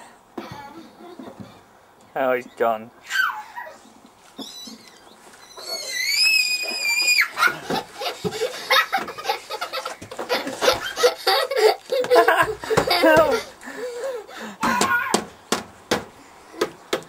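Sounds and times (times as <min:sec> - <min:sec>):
child giggling: 0:00.4 - 0:01.6, 0:03.1 - 0:04.0, 0:06.6 - 0:15.2.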